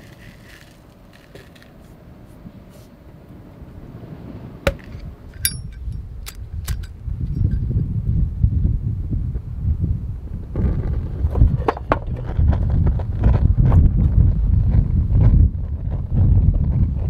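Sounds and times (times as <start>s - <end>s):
wind buffeting microphone: 1.7s - 17.0s
lighter lid metallic clink: 4.7s - 6.9s.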